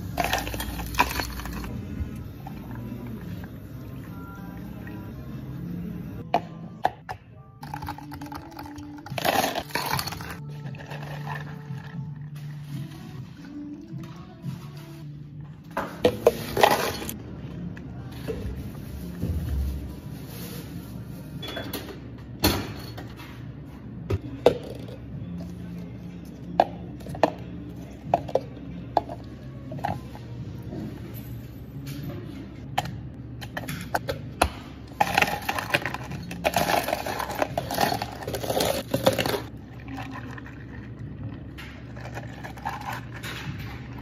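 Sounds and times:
ice clattering into plastic cups: 0.1s - 1.7s, 7.6s - 11.7s, 35.0s - 40.9s, 41.8s - 43.3s.

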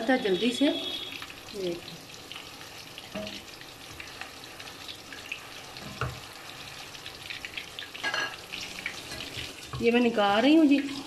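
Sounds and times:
meat sizzling in hot oil: 0.0s - 11.0s
wooden spatula stirring in pan: 3.0s - 8.0s, 8.8s - 10.1s.

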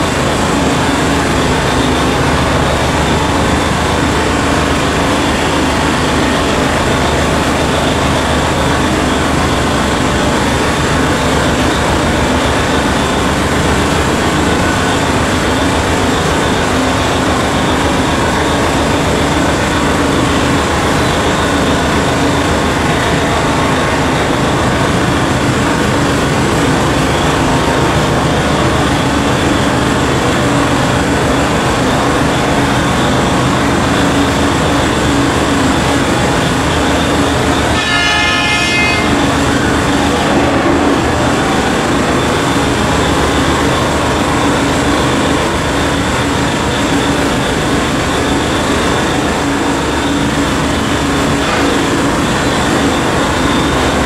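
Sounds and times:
heavy mining machinery din: 0.0s - 54.0s
haul truck engine running: 39.1s - 54.0s.

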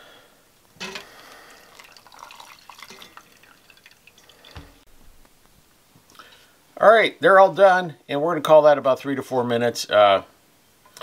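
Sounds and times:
hot water pouring and dripping: 0.8s - 4.9s.

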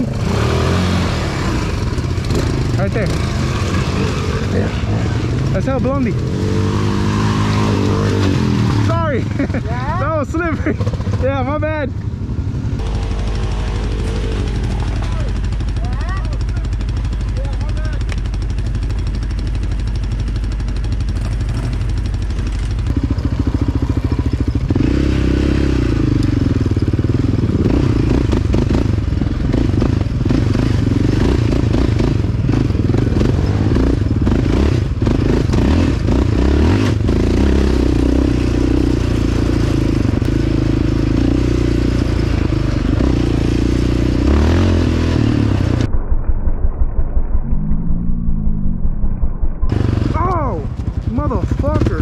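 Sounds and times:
atv engine running: 0.0s - 45.9s, 47.4s - 52.0s
clatter and scraping over rough ground: 12.8s - 24.8s.

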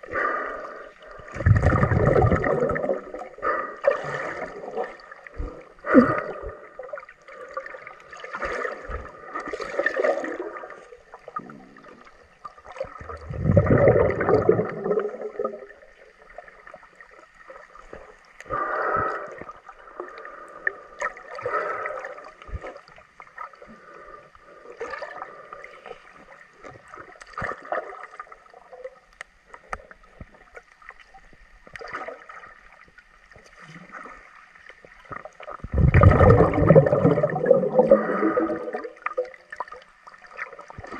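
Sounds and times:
muffled underwater gurgling: 0.0s - 16.0s, 35.1s - 39.6s.

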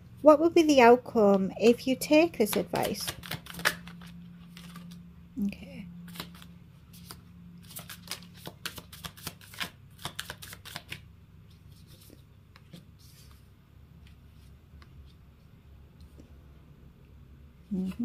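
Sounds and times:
cards being shuffled: 2.4s - 5.0s, 6.1s - 13.4s.

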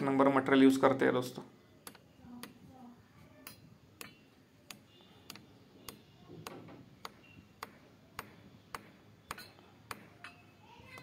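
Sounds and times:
hammer tapping on metal: 3.4s - 11.0s.

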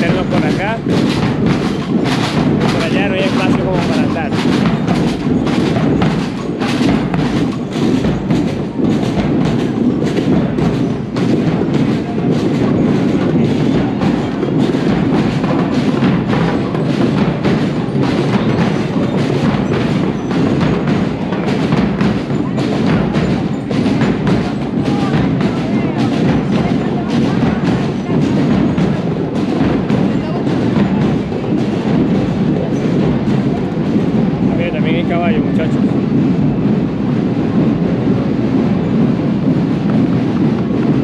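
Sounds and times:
drums and percussion: 0.0s - 41.0s
marching band playing: 0.0s - 41.0s.

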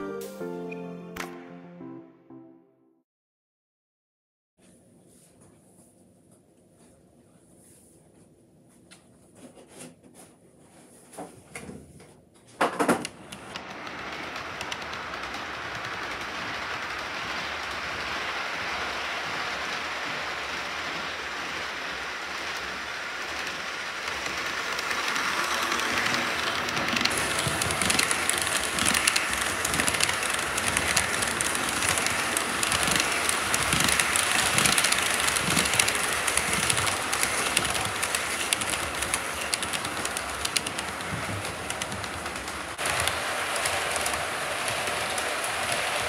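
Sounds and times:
wheels clicking over track joints: 12.6s - 46.0s
model train rumbling: 12.8s - 46.0s.

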